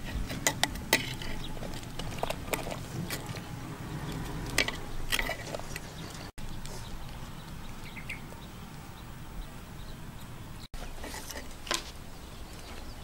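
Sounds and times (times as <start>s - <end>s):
metal spoon scraping clay pot: 0.0s - 6.3s, 10.8s - 11.8s
low outdoor rumble: 0.0s - 13.0s.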